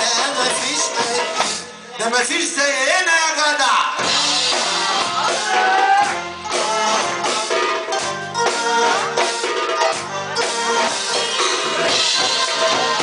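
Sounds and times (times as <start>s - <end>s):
live band playing dance tune: 0.0s - 13.0s
drum beating quick rhythm: 4.0s - 13.0s
melodic instrument line: 4.0s - 13.0s.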